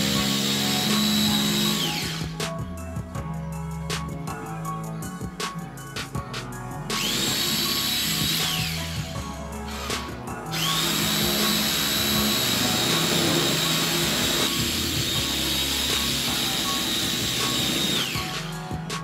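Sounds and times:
power tool whining: 0.0s - 2.4s, 7.0s - 18.6s
background music: 0.0s - 19.0s.

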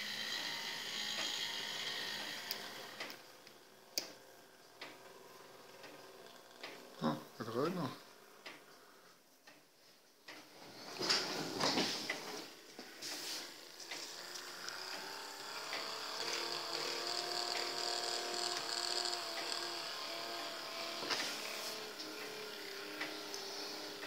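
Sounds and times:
small electric motor whirring: 0.0s - 8.7s, 10.7s - 24.0s.

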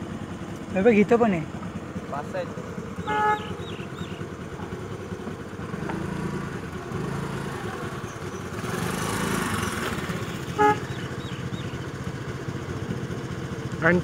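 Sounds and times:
vehicle engines humming: 0.0s - 14.0s
vehicle passing: 2.0s - 12.0s
car horn toot: 3.0s - 3.9s, 10.4s - 11.2s.

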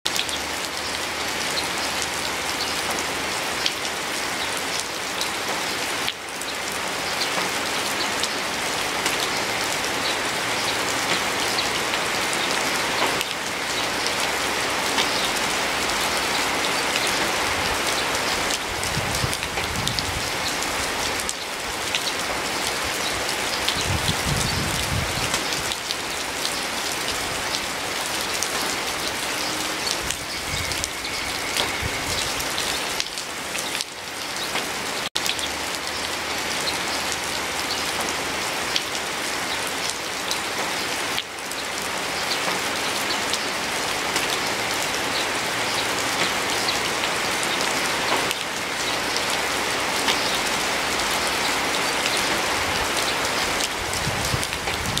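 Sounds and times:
steady rain patter: 0.1s - 55.0s.

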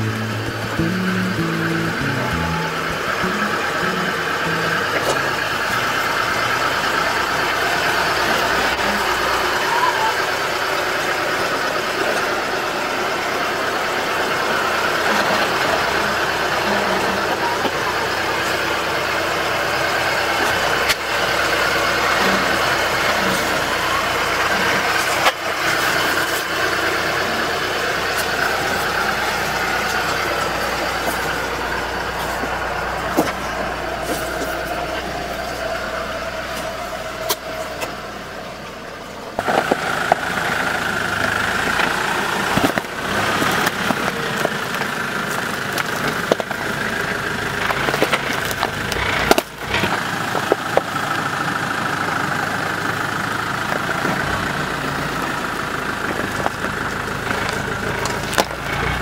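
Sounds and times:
engine running at low revs: 0.0s - 59.0s.

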